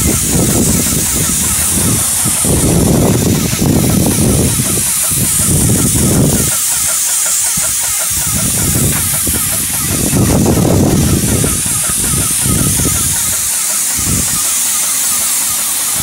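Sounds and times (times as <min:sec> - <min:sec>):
low rumbling: 0:00.0 - 0:06.5
paint sprayer hissing: 0:00.0 - 0:16.0.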